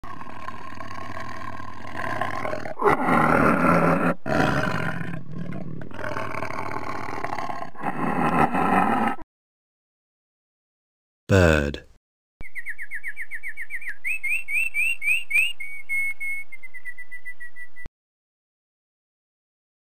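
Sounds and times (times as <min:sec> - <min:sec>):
tiger roaring: 0:00.0 - 0:09.2.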